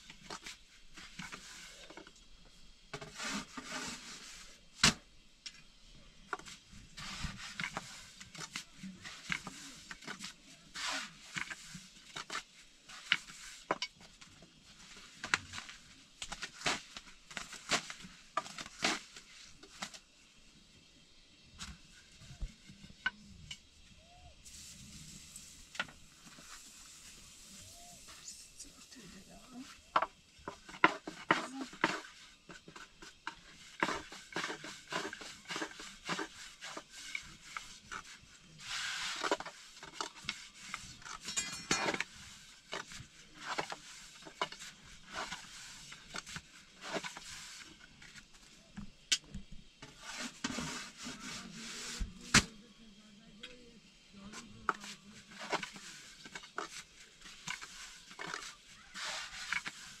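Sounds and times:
dough rubbing: 24.2s - 48.8s, 49.8s - 52.8s, 54.2s - 60.0s.

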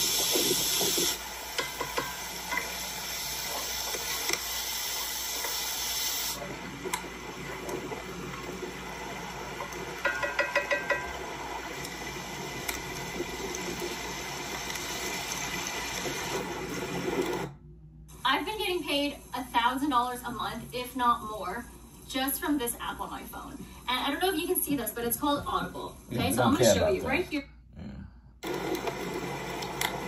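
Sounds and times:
running water hiss: 0.0s - 6.4s.

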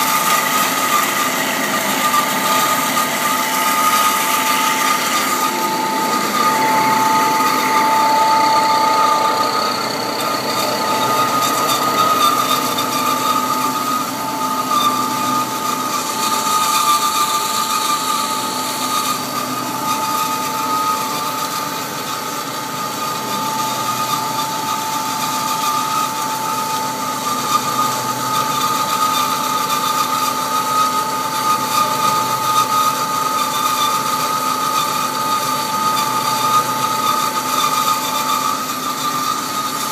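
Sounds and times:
bandsaw running: 0.0s - 39.9s
high steady machine tones: 0.0s - 39.9s.

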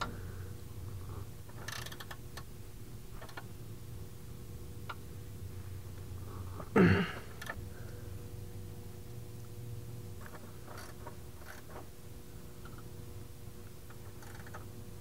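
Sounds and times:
creaking clunk: 1.5s - 2.2s, 10.2s - 11.9s, 13.9s - 14.7s.

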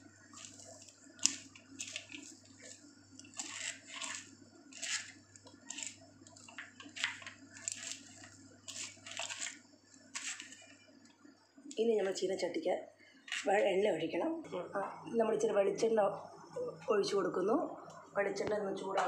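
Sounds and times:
crunchy cabbage rustles: 0.3s - 10.8s.

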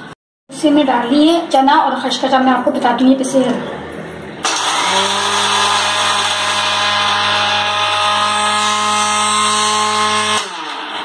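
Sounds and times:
electric mixer-grinder running: 4.4s - 11.0s.

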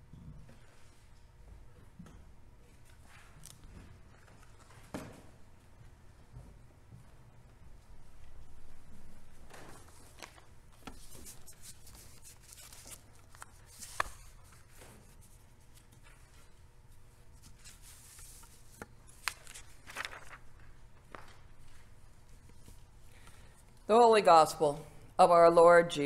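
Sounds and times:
steady low hum: 0.0s - 26.0s
pages rustling: 9.5s - 16.5s, 17.3s - 23.4s.

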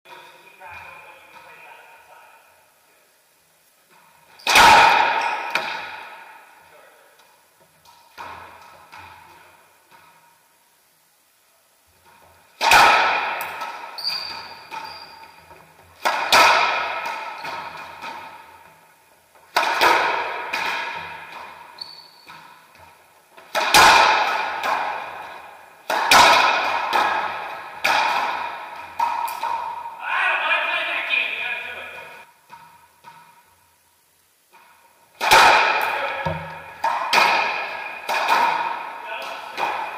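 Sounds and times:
ball hitting court walls: 3.9s - 6.6s, 7.2s - 10.3s, 12.0s - 30.0s, 32.4s - 33.6s, 34.5s - 39.9s
racquets striking ball: 4.0s - 6.6s, 7.8s - 10.2s, 12.6s - 30.0s, 34.6s - 39.9s.

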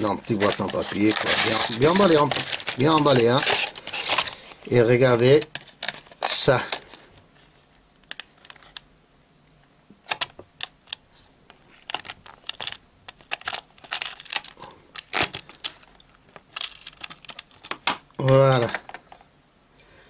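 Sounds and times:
plastic blister pack crackling: 0.0s - 7.1s, 11.7s - 18.4s.

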